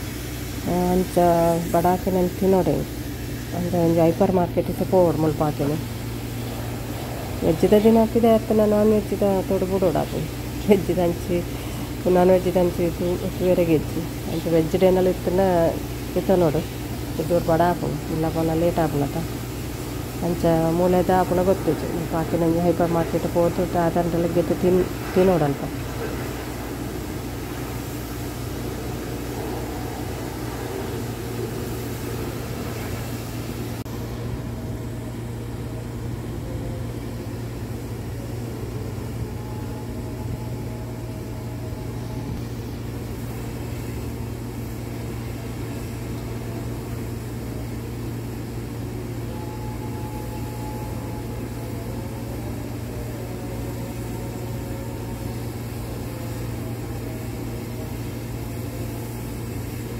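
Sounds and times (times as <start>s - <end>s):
hiss: 0.0s - 34.2s
car wash equipment hum: 0.0s - 59.9s.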